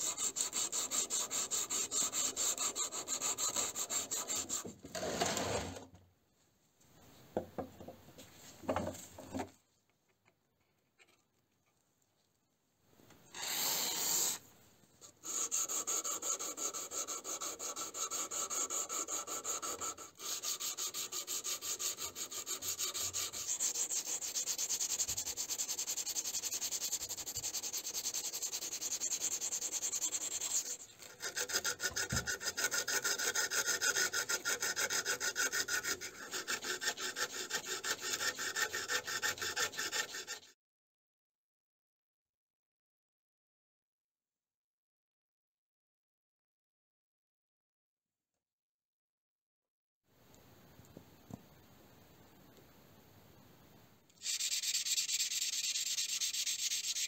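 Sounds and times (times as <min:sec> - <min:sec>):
file rasping on steel blade: 0:00.0 - 0:05.7, 0:13.3 - 0:14.4, 0:15.0 - 0:40.6, 0:54.2 - 0:57.0.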